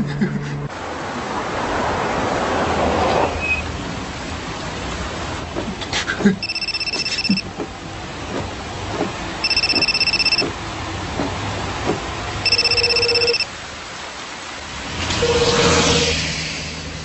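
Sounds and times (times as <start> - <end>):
mobile phone ringing: 6.4 - 7.4, 9.4 - 10.5, 12.4 - 13.5.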